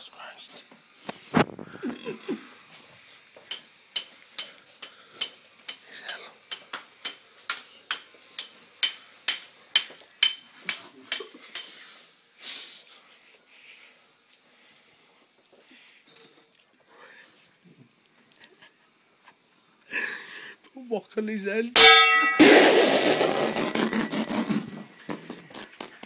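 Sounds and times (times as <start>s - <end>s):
metal spoon tapping on wok: 21.8s - 22.4s.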